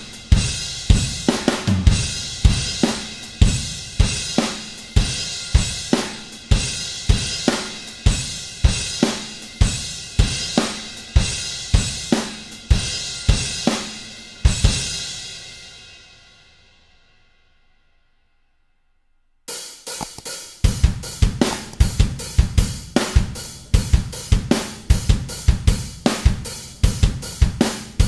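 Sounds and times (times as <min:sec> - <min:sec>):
drum kit beat: 0:00.0 - 0:13.8, 0:19.9 - 0:28.0.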